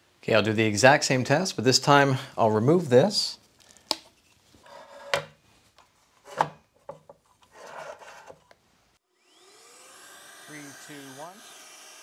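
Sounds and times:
plastic rubbing and scraping: 5.8s - 8.6s.

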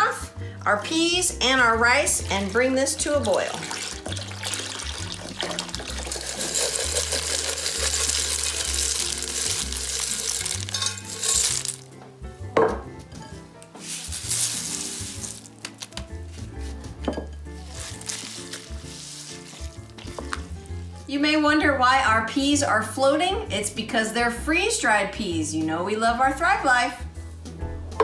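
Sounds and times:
background music: 0.0s - 28.0s
liquid pouring and sizzling in pan: 2.2s - 11.9s, 13.8s - 15.5s, 17.6s - 20.8s
food splashing into pan: 3.1s - 11.9s.

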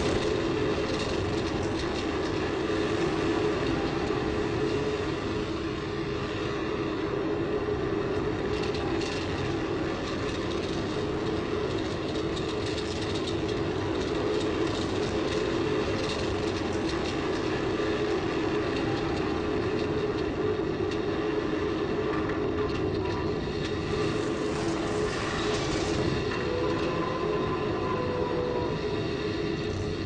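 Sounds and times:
roar of rushing air: 23.7s - 29.6s.

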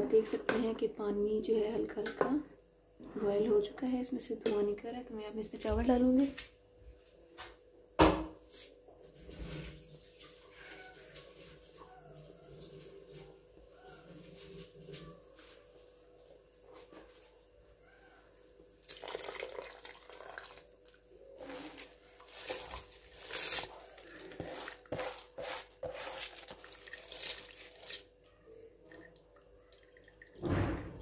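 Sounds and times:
rice pouring into a pot: 18.8s - 28.1s.

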